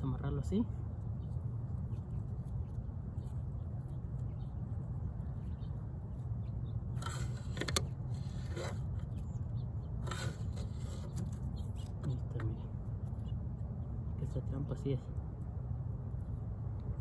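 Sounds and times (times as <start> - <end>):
steady low rumble: 0.0 - 17.0
plastic crate scraping: 7.0 - 9.0, 10.0 - 11.4.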